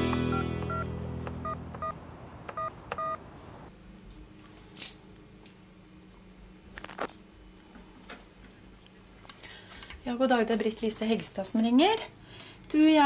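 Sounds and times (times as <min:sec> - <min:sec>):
telephone keypad beeps: 0:00.3 - 0:00.8, 0:01.4 - 0:02.0, 0:02.6 - 0:03.2.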